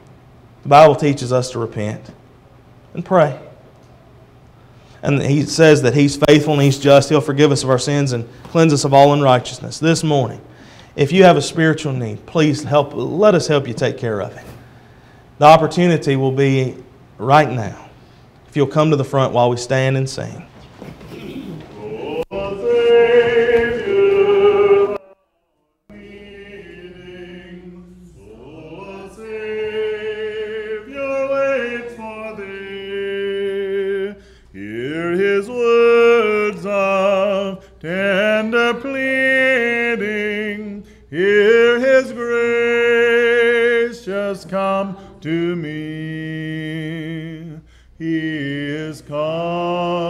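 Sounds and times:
congregation singing a hymn: 21.2 - 25.2, 25.9 - 50.0.

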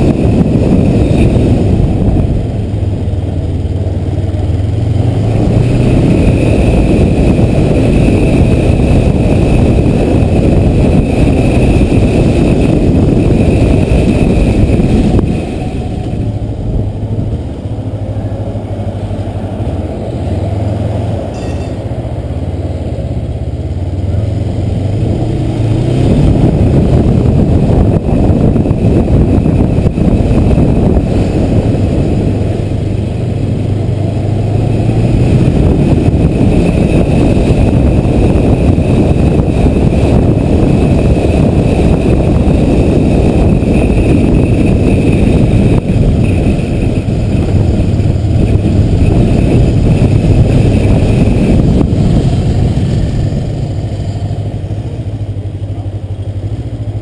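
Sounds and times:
motorcycle engine running: 0.0 - 57.0
wind rumble on helmet: 0.0 - 57.0.

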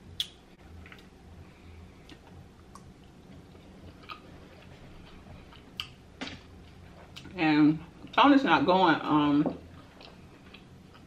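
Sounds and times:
wet mouth clicks: 0.2 - 0.4
quiet chewing: 2.0 - 6.0, 9.6 - 11.0.

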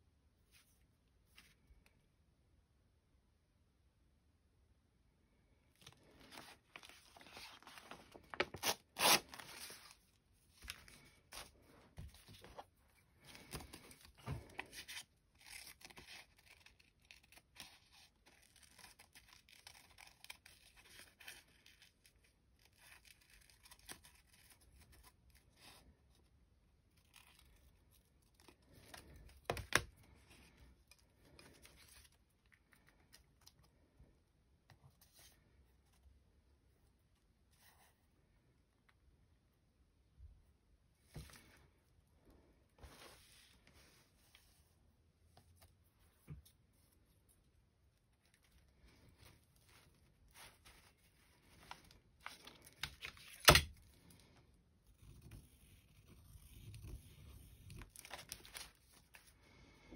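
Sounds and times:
paper rustling: 5.8 - 21.3, 45.4 - 54.1.

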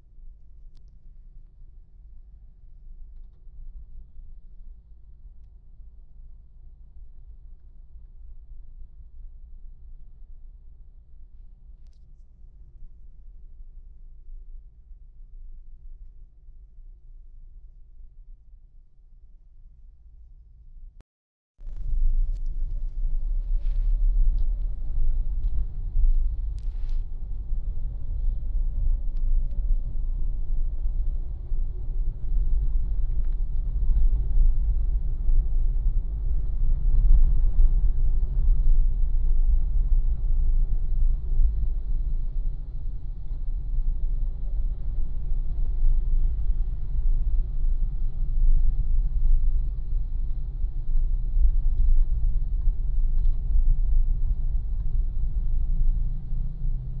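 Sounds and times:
road vehicle rumble: 21.6 - 57.0.

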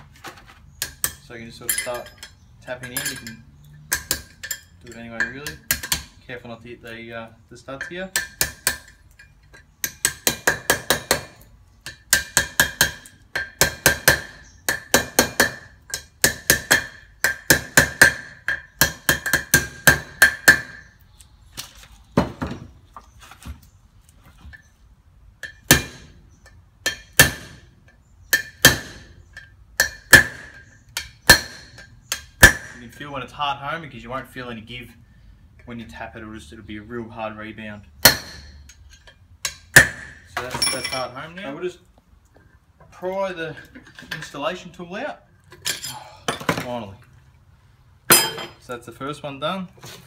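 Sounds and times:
hammer tapping metal: 48.1 - 48.6.

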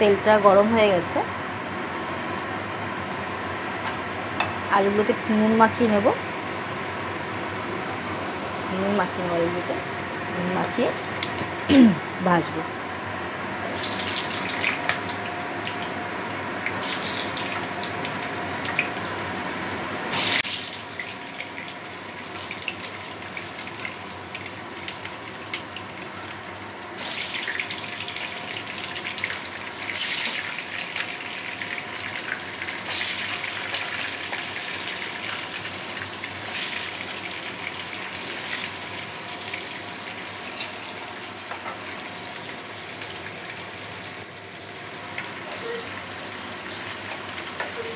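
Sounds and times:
potatoes sizzling in hot oil: 13.7 - 47.9.

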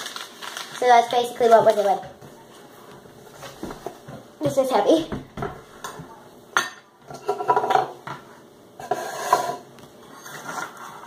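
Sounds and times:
metal bowl set on wooden table: 5.4 - 11.0.

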